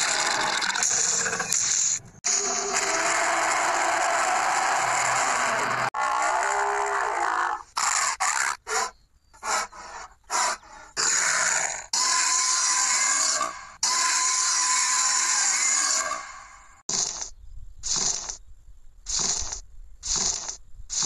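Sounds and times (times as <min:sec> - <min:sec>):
dinosaur growl and roars: 0:02.3 - 0:08.6.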